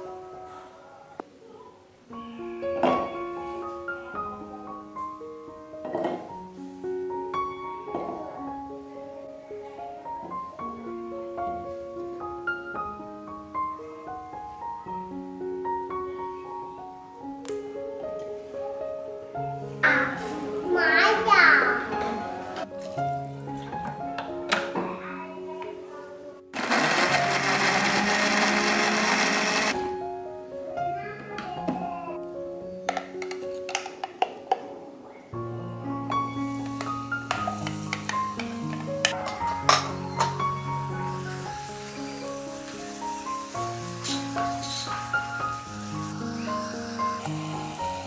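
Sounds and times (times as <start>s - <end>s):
slow piano melody: 0.0s - 29.0s, 29.7s - 48.0s
background music: 2.0s - 31.2s, 35.3s - 48.0s
electric blender grinding: 26.6s - 29.8s.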